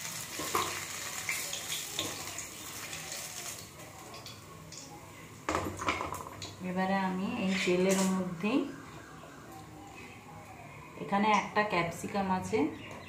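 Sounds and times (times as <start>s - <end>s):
hot oil sizzling: 0.0s - 6.6s.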